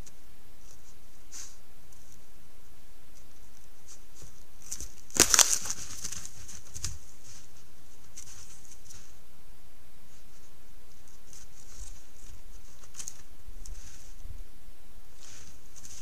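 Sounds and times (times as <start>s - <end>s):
steady high hiss: 0.0s - 16.0s
crackles and snaps in brush: 3.1s - 9.1s, 10.9s - 14.2s, 15.2s - 16.0s.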